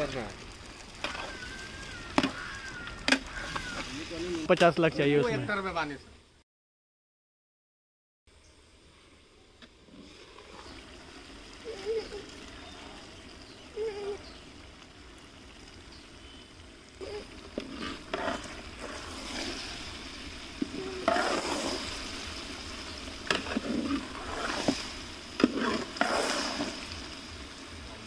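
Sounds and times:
sizzling hot oil: 0:00.0 - 0:06.4, 0:08.3 - 0:28.0
metal ladle scraping a pot: 0:17.5 - 0:19.7, 0:20.6 - 0:21.8.

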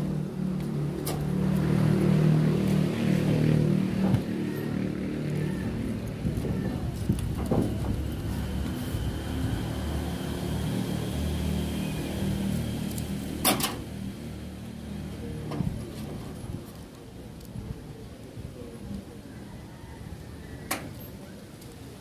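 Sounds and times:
steady low rumble: 0:00.0 - 0:11.7.

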